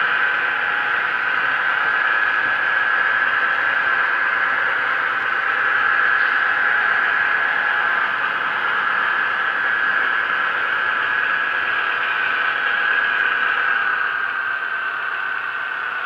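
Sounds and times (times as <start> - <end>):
model locomotive engine sound: 0.0 - 16.0
model train wheels rolling on track: 0.0 - 16.0.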